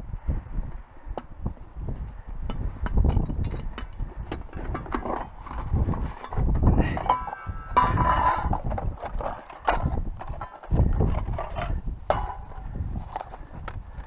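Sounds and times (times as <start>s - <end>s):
wind buffeting microphone: 0.0s - 14.0s
camping gear clicks and knocks: 2.4s - 14.0s.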